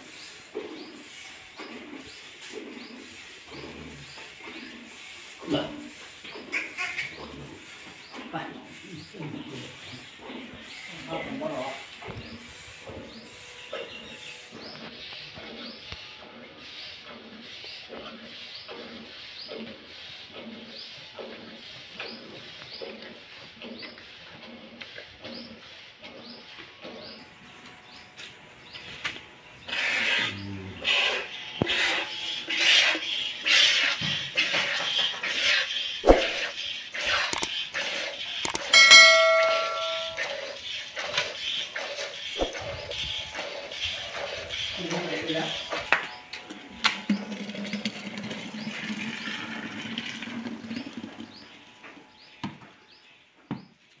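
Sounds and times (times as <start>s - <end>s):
milk squirting into plastic bucket: 47.0s - 51.2s.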